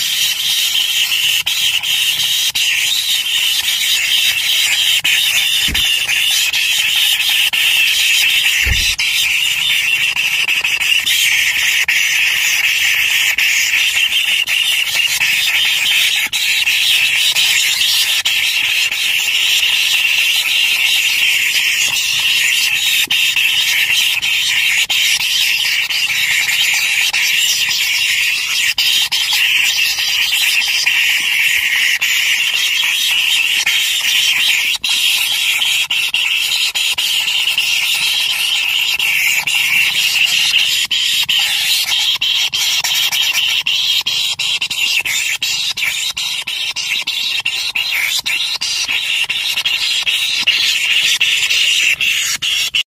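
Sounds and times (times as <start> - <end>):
nestlings begging calls: 0.0 - 10.2.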